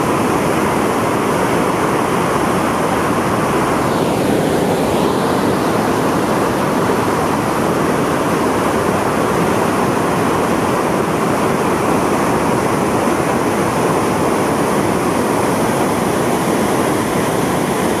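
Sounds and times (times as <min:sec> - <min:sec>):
waterfall roaring: 0:00.0 - 0:18.0.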